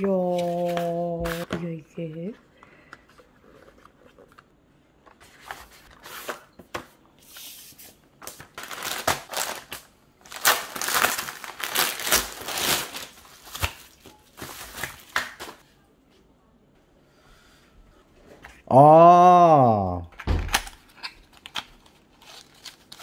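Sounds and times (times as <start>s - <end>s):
bubble wrap rustling: 8.2s - 15.6s, 21.2s - 23.0s
plastic mailer crinkling and tearing: 8.4s - 15.6s, 20.5s - 23.0s.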